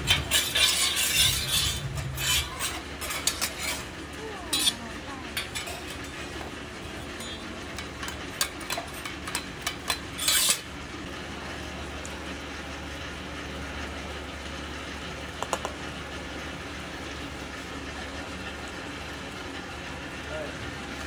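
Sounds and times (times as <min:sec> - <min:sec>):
spatula scraping metal griddle: 0:00.0 - 0:10.8
steady low hum: 0:00.0 - 0:20.9
metal spatula clicking on griddle: 0:04.5 - 0:04.8, 0:07.2 - 0:10.6.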